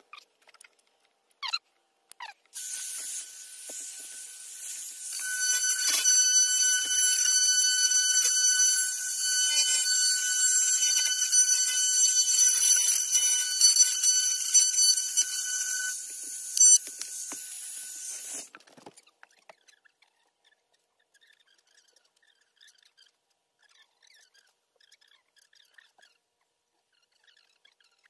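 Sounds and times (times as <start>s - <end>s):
wood router whining: 2.6s - 18.5s.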